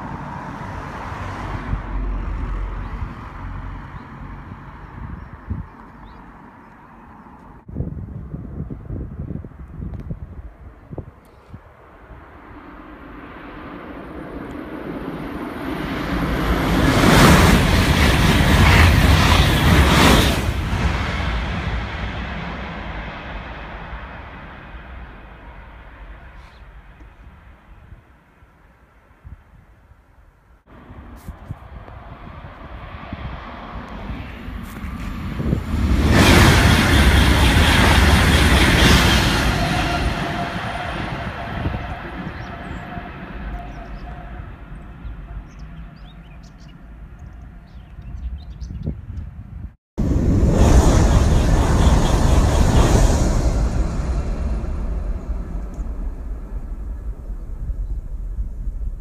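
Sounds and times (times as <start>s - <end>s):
high-speed train passing: 0.0s - 5.6s, 7.2s - 28.9s, 30.6s - 59.0s.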